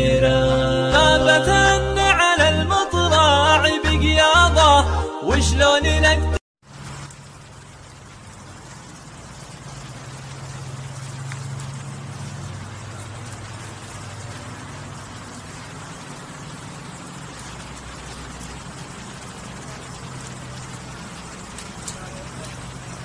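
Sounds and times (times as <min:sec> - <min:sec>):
rain: 0:06.6 - 0:23.0
splashing floodwater: 0:06.6 - 0:23.0
vehicle engine hum: 0:06.6 - 0:23.0.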